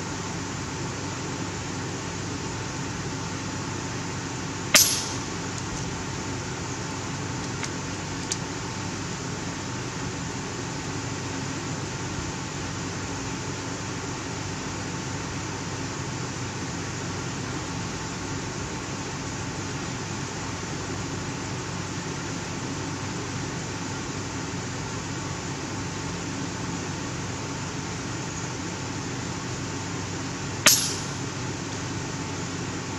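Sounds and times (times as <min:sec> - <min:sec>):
steady background hiss: 0:00.0 - 0:32.9
air rifle shot: 0:04.7 - 0:05.4, 0:30.7 - 0:31.3.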